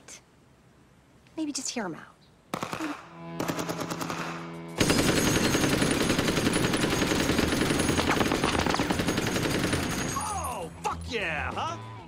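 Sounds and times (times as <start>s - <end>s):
automatic rifle fire: 2.5s - 10.2s.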